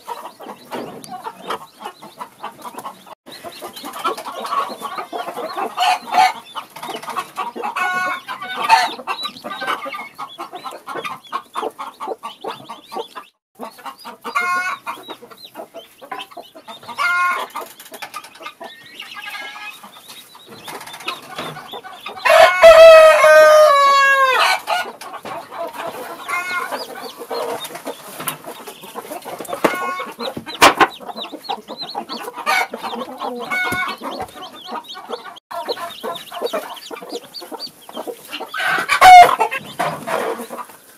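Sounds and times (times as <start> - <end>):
chicks calling: 0.0 - 40.9
hen clucking: 0.0 - 40.9
rooster crowing: 22.2 - 24.7, 38.6 - 39.4.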